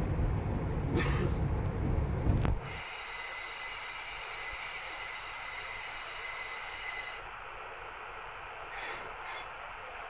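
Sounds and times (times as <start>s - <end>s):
high-pitched whine: 2.6s - 10.0s.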